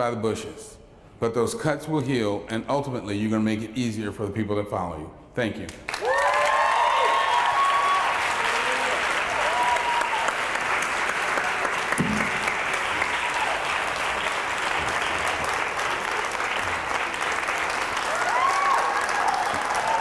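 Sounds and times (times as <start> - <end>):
audience applauding: 5.9 - 20.0
crowd whooping: 6.0 - 14.4, 18.0 - 20.0.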